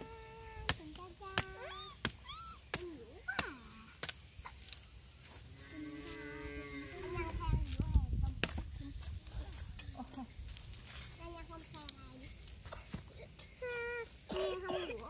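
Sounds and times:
monkeys squeaking and chirping: 0:00.0 - 0:05.0, 0:12.4 - 0:15.0
sugarcane cracking and clicking: 0:00.7 - 0:04.9, 0:07.7 - 0:13.5.

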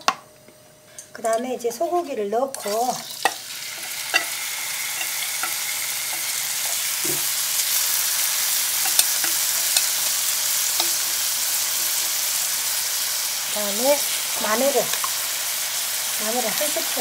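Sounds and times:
meat sizzling in a frying pan: 0:02.5 - 0:17.0
chopsticks clicking on metal bowl: 0:08.8 - 0:10.0, 0:10.7 - 0:11.1.

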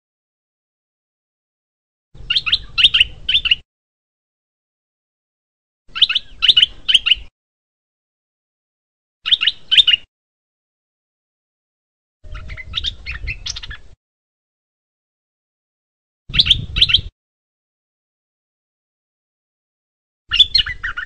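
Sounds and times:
bird chirping: 0:02.2 - 0:03.6, 0:05.9 - 0:07.3, 0:09.2 - 0:10.1, 0:12.2 - 0:14.0, 0:16.3 - 0:17.1, 0:20.3 - 0:21.0.

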